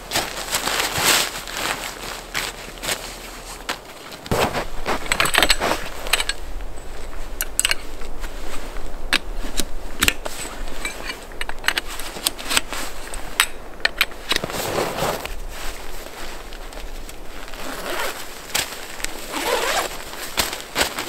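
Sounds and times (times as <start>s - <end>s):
metal tent pole clicking: 4.3s - 6.4s, 7.4s - 8.1s, 9.1s - 14.5s.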